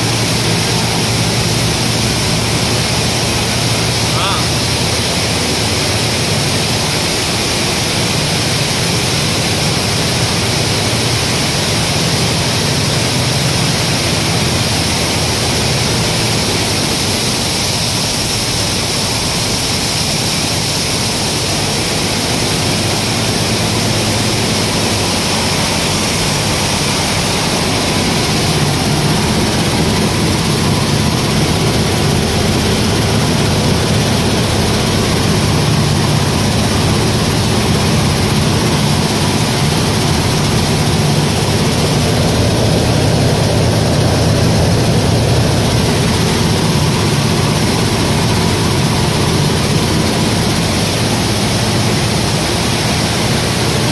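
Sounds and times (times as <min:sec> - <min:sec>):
grain cleaning machine running: 0:00.0 - 0:53.9.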